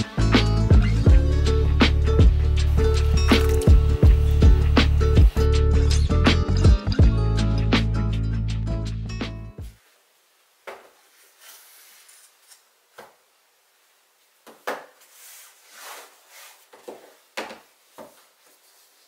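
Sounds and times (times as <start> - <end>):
boxes scraping on tabletop: 15.1 - 16.7.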